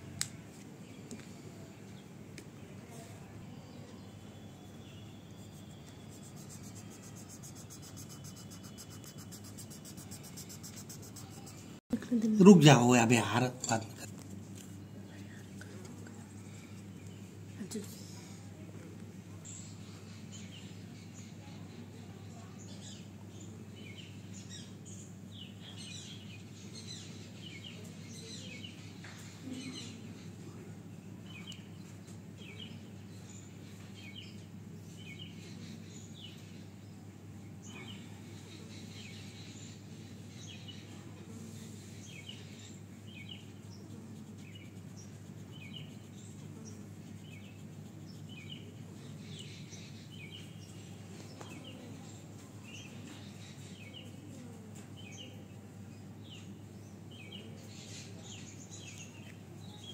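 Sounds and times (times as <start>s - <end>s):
small birds chirping: 0.2s - 59.9s
steady low hum: 4.1s - 22.2s, 23.5s - 51.4s.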